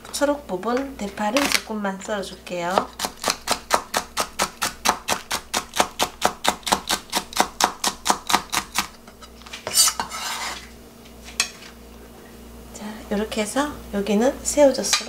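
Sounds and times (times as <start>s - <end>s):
knife chopping on plastic board: 2.7s - 8.9s
rustling scrape of chopped pieces: 8.8s - 11.8s.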